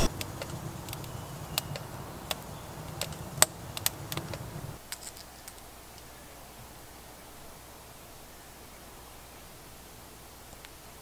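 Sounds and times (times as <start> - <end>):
fire hiss: 0.0 - 4.8
fire pops and snaps: 0.0 - 4.8
campfire crackling: 0.0 - 6.1.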